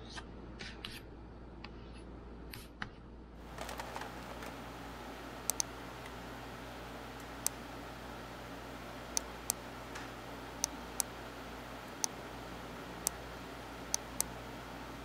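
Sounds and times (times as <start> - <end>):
computer mouse clicks: 5.5 - 6.2, 11.9 - 12.2, 13.9 - 14.4.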